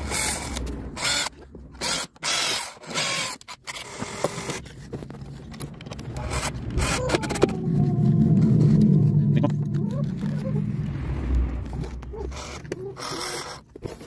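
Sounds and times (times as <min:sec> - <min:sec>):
cordless drill whirring: 0:00.0 - 0:04.6, 0:12.4 - 0:14.0.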